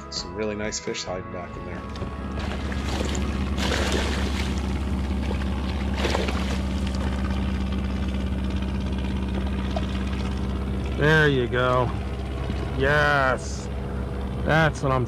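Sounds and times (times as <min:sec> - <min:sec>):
low rumble: 0:01.4 - 0:15.0
fish splashing at water surface: 0:02.3 - 0:08.2.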